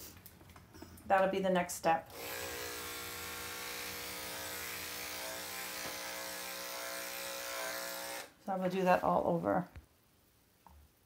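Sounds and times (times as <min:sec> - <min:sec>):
electric clipper humming: 0:02.1 - 0:08.3.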